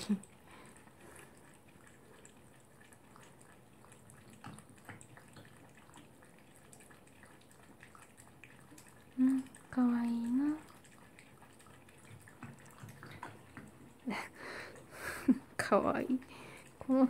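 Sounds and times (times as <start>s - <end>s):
dog lapping water: 0.0s - 17.0s
water dripping: 0.0s - 17.0s.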